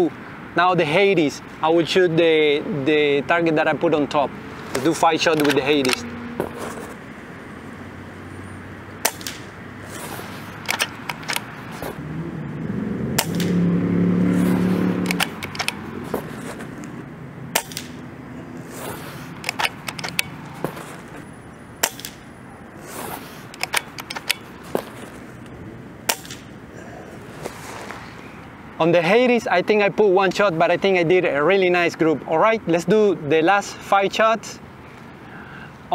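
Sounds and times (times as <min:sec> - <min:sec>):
low hum: 0:06.0 - 0:22.8
air rifle shots: 0:09.0 - 0:12.0, 0:13.1 - 0:13.6, 0:14.3 - 0:16.8, 0:17.5 - 0:25.2, 0:26.0 - 0:26.6.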